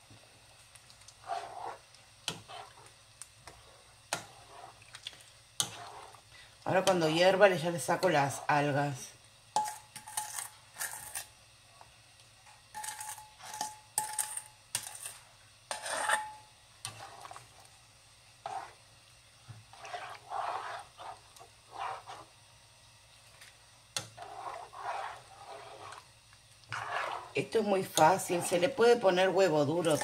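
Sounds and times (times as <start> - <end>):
spoon scraping and stirring in pan: 0.6 - 8.6, 9.5 - 11.4, 12.4 - 17.8, 18.4 - 22.4, 23.2 - 30.0.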